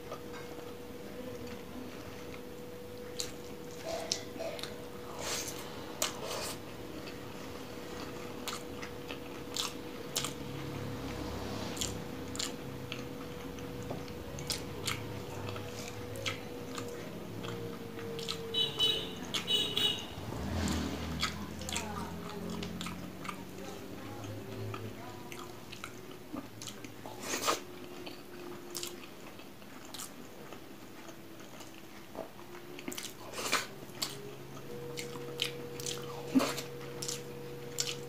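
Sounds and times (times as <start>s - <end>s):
chewing and wet mouth clicks: 2.3s - 7.2s, 7.9s - 19.5s, 20.5s - 38.0s.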